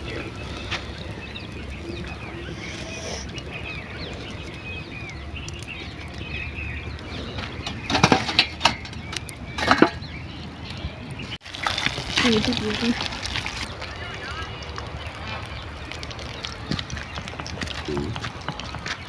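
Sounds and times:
faint bird chirps: 0:00.0 - 0:11.4.

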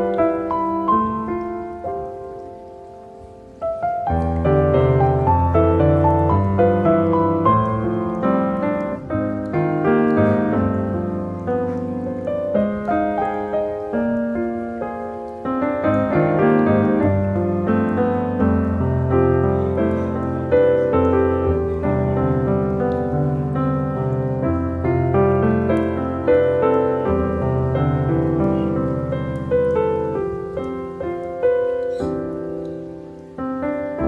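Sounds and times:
piano melody: 0:00.0 - 0:34.0.

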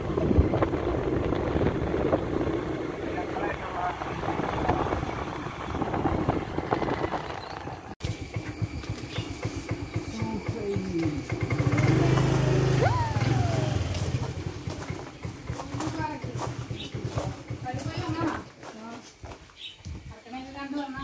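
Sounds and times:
wind noise: 0:00.0 - 0:08.0, 0:19.8 - 0:21.0
motor scooter engine: 0:00.0 - 0:18.6.

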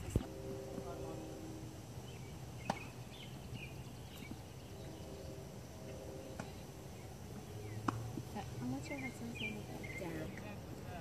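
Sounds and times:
tennis balls struck with rackets: 0:02.6 - 0:03.4, 0:06.3 - 0:06.6, 0:07.3 - 0:08.8.

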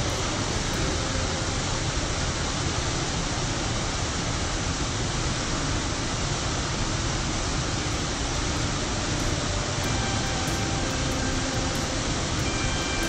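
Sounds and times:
waterfall rushing: 0:00.0 - 0:04.3, 0:06.4 - 0:13.0.

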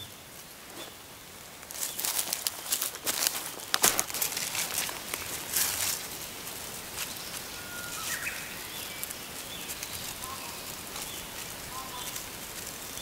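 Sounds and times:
sickle cutting grass: 0:00.0 - 0:13.0
faint bird chirps: 0:07.1 - 0:12.2.

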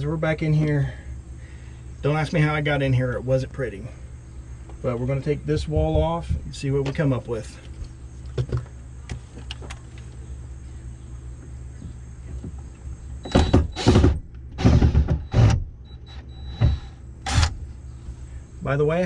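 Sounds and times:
low steady hum: 0:00.0 - 0:19.0
cordless drill driving screws: 0:13.3 - 0:17.6.

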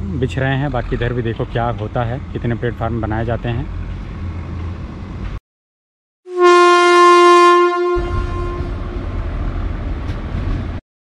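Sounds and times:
locomotive horn blast: 0:06.3 - 0:09.0.

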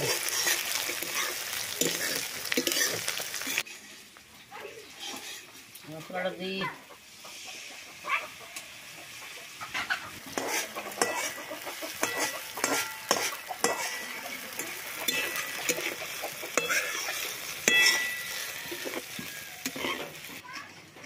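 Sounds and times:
food sizzling in hot oil: 0:00.0 - 0:20.6
metal spatula scraping a wok: 0:00.0 - 0:20.8.

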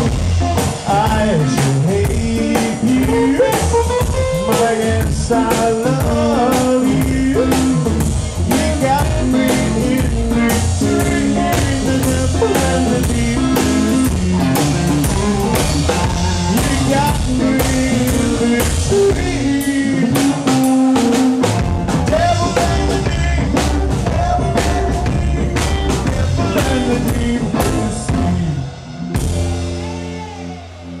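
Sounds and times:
rockabilly band playing live: 0:00.0 - 0:31.0.

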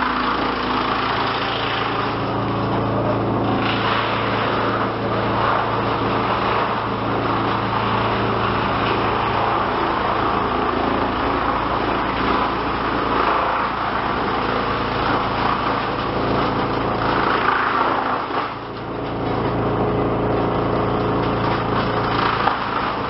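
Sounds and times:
electric motor hum: 0:00.0 - 0:23.0
wood chipper chipping wood: 0:00.0 - 0:23.0.

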